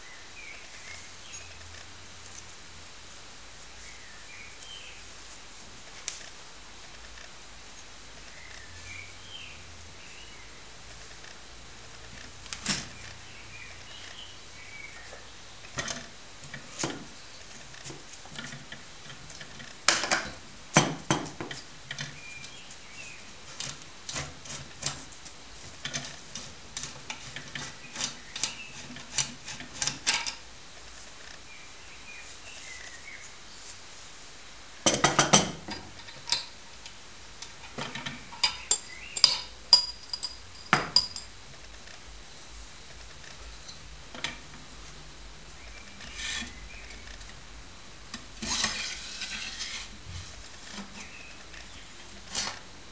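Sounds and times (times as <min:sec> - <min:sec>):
metal parts clinking and clattering: 0:37.7 - 0:41.3
metal parts rattling: 0:37.7 - 0:41.3.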